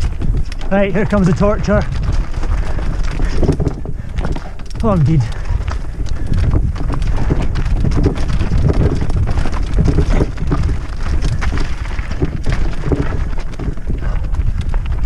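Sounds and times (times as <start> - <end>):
bike rattling and clattering: 0.0 - 15.0
tyres crunching over gravel: 0.0 - 15.0
wind rumble on microphone: 0.0 - 15.0.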